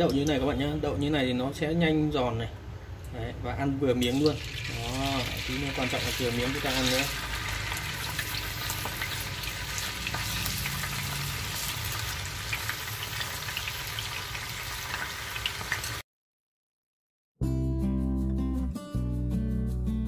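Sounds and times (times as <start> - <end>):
tofu sizzling in hot oil: 4.0 - 16.0
acoustic guitar music: 17.4 - 20.0.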